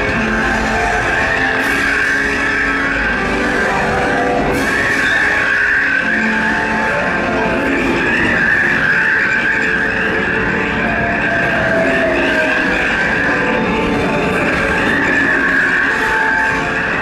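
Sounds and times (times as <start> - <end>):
train wheels squealing on rails: 0.3 - 13.4.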